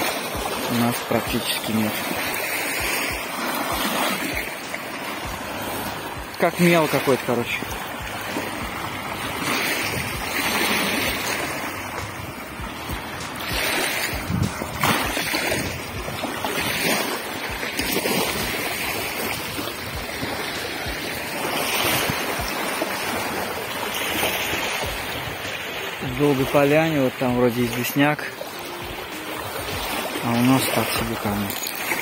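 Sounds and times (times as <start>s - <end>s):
small waves on pebbly shore: 0.0s - 32.0s
wind on microphone: 7.6s - 25.8s.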